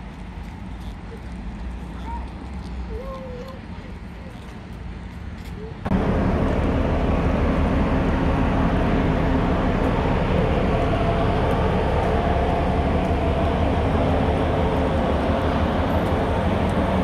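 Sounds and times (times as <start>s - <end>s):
ship engines rumbling: 5.7s - 17.0s.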